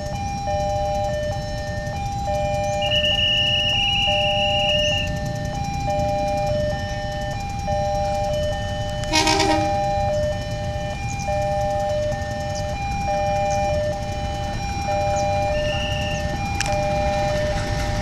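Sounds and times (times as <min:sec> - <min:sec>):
level crossing two-tone alarm: 0:00.0 - 0:18.0
low train rumble: 0:00.0 - 0:18.0
train horn toot: 0:09.0 - 0:10.1.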